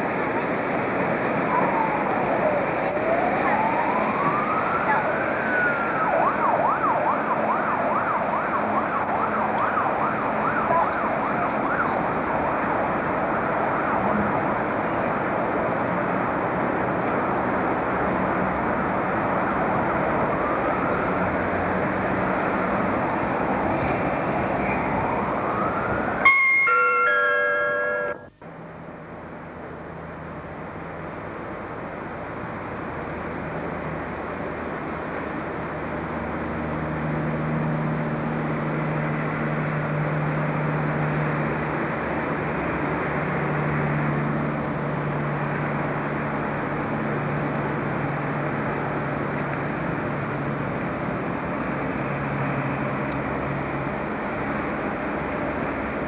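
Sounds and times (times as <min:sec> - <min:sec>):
steady background noise: 0:00.0 - 0:56.0
emergency siren wailing: 0:01.3 - 0:15.8, 0:17.8 - 0:28.6
station announcement chime: 0:26.2 - 0:28.4.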